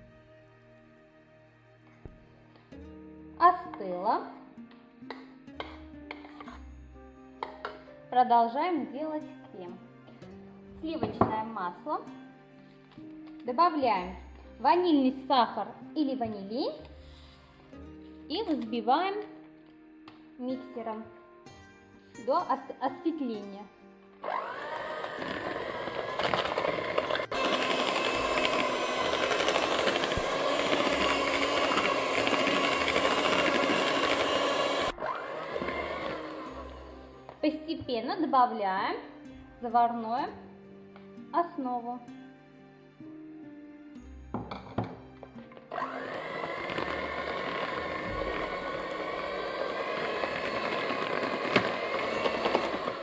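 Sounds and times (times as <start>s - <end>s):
electric hand mixer motor: 24.2s - 37.2s, 45.7s - 53.0s.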